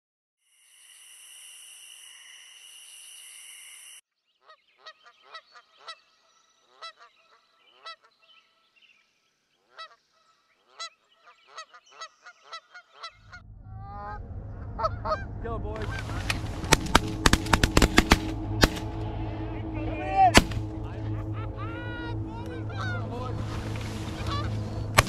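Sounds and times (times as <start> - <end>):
geese honking: 4.4 - 8.7, 9.6 - 25.0.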